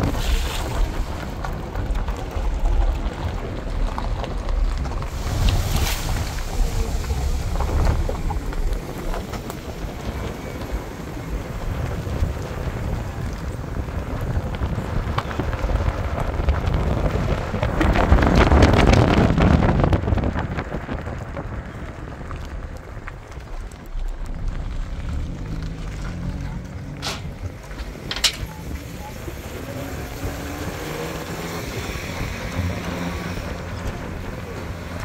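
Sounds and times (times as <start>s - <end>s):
rain rushing: 0.0s - 35.0s
wind rumbling on microphone: 0.0s - 35.0s.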